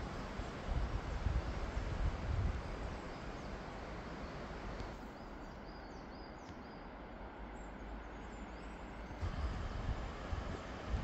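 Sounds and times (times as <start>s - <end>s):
wind on microphone: 0.0s - 3.1s, 9.2s - 11.0s.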